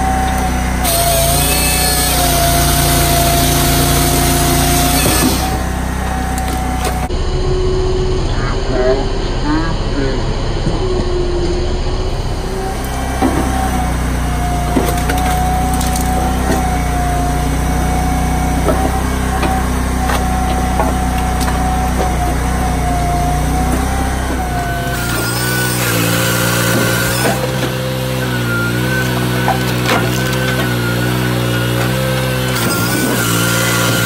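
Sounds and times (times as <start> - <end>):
firewood processor running: 0.0 - 34.0
logs knocking and cracking: 6.3 - 7.1, 13.1 - 13.8, 14.6 - 17.8, 18.4 - 22.8, 23.5 - 34.0.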